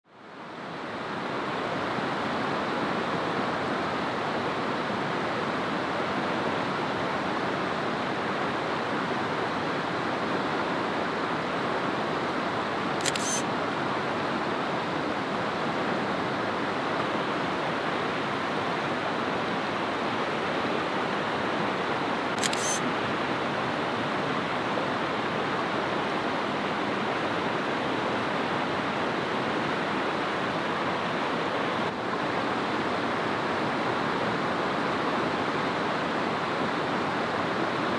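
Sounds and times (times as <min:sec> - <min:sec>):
sharp high-pitched sound: 0:22.5 - 0:22.8.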